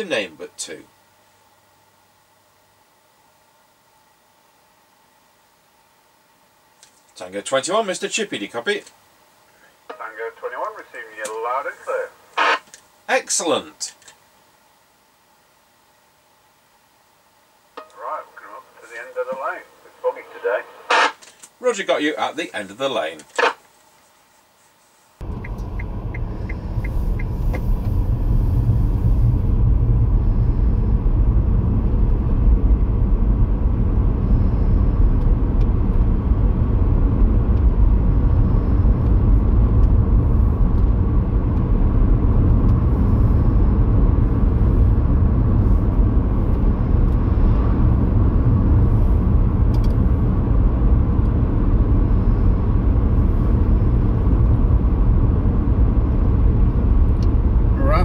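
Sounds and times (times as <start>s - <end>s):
car engine and tyre rumble: 25.2s - 58.0s.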